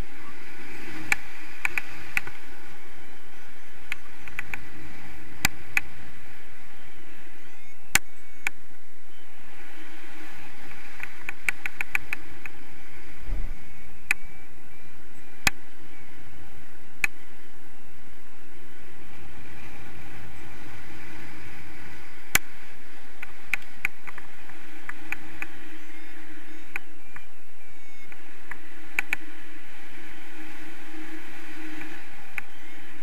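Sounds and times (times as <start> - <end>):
wind rushing over microphone: 0.0 - 33.0
sharp clicks: 11.0 - 12.6.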